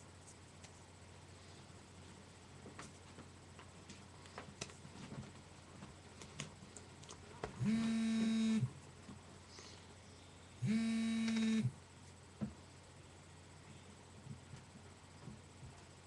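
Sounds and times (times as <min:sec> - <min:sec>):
hands tapping and rustling: 0:02.6 - 0:07.6
loud buzzing tone: 0:07.6 - 0:08.8, 0:10.6 - 0:11.8.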